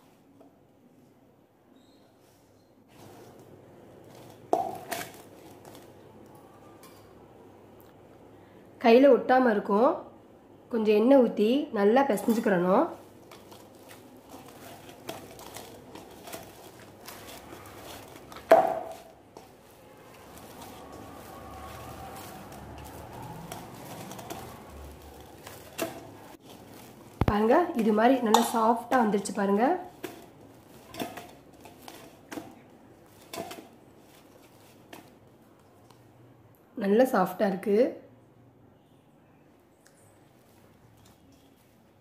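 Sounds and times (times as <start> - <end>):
hands kneading dough: 12.0 - 36.0
dough thudding in metal bowl: 14.3 - 19.4, 27.2 - 33.8.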